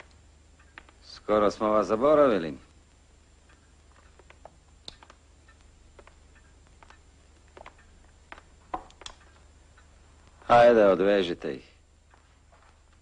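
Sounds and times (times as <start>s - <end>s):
low steady hum: 0.0s - 13.0s
footsteps and movements in a room: 3.5s - 10.5s, 11.8s - 13.0s.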